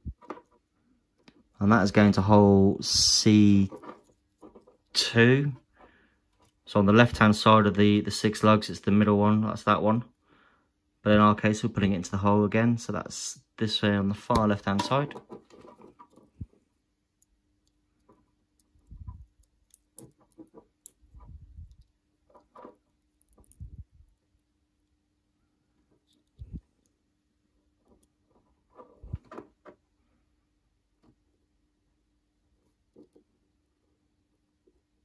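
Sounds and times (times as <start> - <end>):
faint clicks and handling knocks: 0.0 - 1.6, 3.5 - 6.7, 14.2 - 24.2, 27.8 - 29.9, 32.6 - 33.5.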